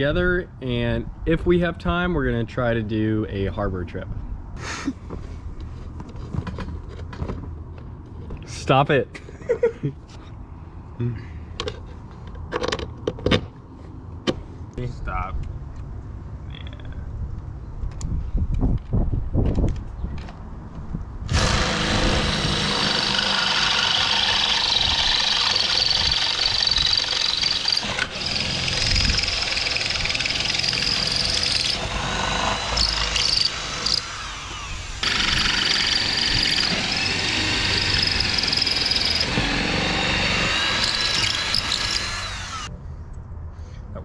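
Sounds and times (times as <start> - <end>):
cordless drill driving bolts: 21.3 - 42.7.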